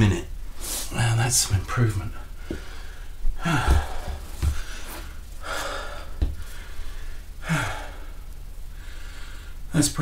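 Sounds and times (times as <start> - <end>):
man panting hard: 2.5 - 8.1.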